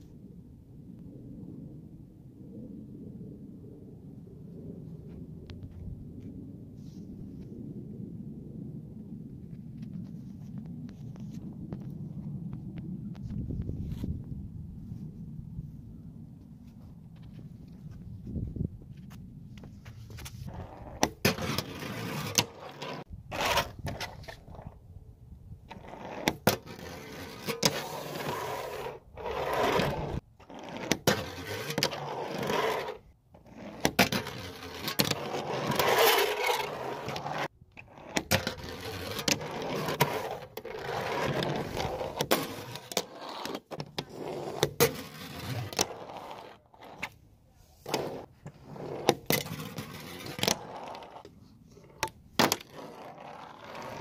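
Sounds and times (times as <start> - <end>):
small wheels rolling: 20.0 - 24.8, 25.7 - 47.1, 47.8 - 54.0.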